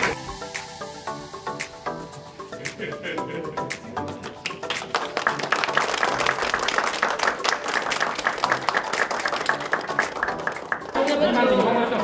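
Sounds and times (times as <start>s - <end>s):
small group applauding: 3.7s - 11.5s.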